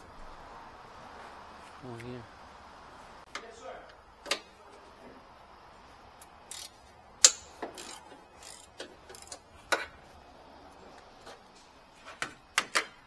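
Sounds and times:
hand tools clicking and clinking: 6.2s - 10.0s.

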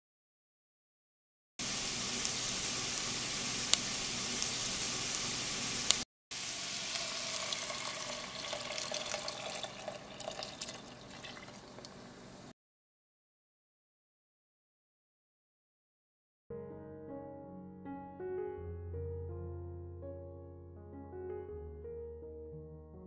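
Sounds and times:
rice sizzling in oil: 1.6s - 12.5s
water pouring into pot: 6.4s - 12.0s.

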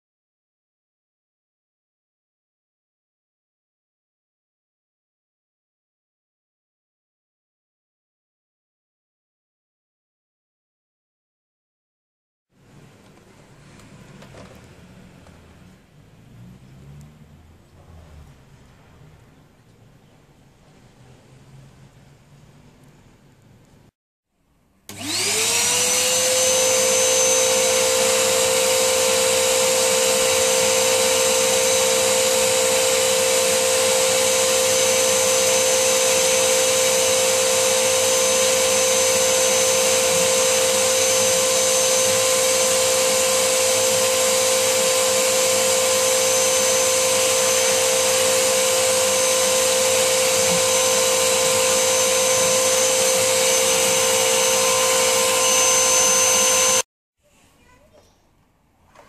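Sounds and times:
vacuum cleaner motor whine: 13.8s - 15.6s, 24.9s - 56.9s
nozzle sucking dust: 27.2s - 56.8s.

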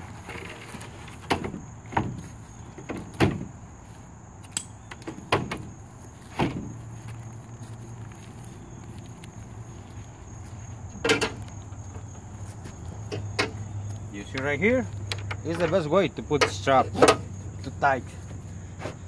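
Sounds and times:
wooden boards clunking on tailgate: 0.2s - 3.6s, 4.9s - 6.8s, 11.0s - 12.2s, 12.9s - 17.3s.

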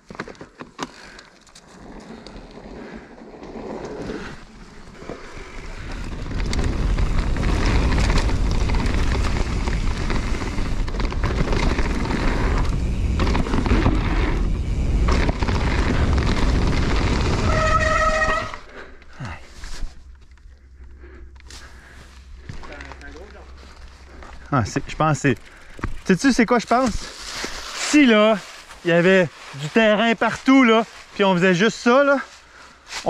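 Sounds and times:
tyre rumble over dirt: 1.6s - 18.7s
wind buffeting microphone: 5.6s - 18.1s.

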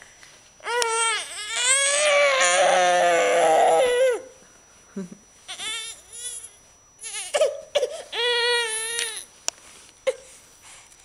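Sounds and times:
baby crying: 0.6s - 4.3s, 5.5s - 9.2s.

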